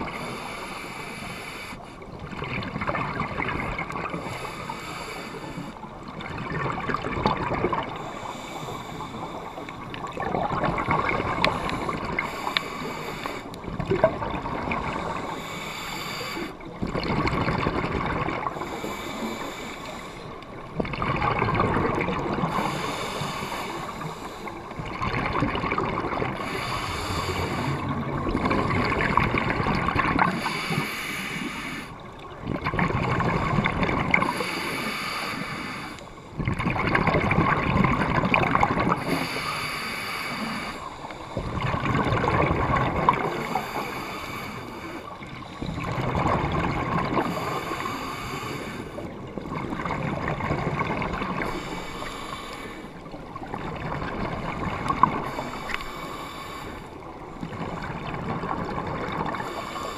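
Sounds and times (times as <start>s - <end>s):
diver exhalation bubbles gurgling: 6.2s - 8.1s, 16.8s - 18.8s, 20.8s - 23.0s, 24.9s - 31.0s, 36.4s - 39.4s, 41.4s - 43.9s, 45.6s - 48.0s.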